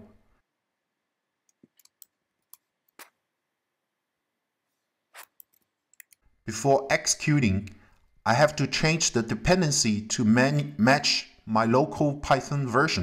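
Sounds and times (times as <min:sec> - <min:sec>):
mouse and keyboard clicks: 0:01.5 - 0:03.2.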